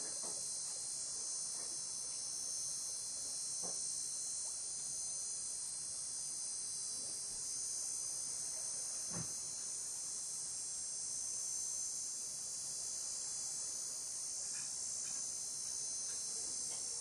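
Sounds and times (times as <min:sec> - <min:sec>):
insects trilling: 0:07.6 - 0:17.0.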